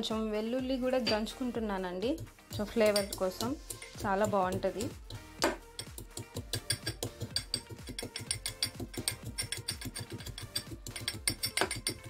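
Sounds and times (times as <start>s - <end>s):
metallic knocks of pounding: 4.0s - 12.0s.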